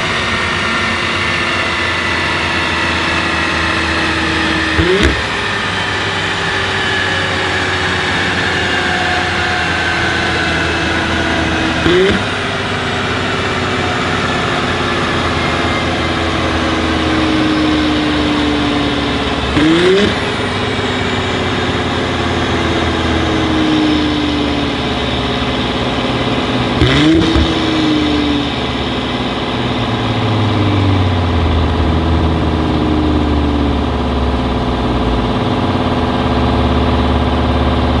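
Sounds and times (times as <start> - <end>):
car engine revving: 0.0 - 38.0.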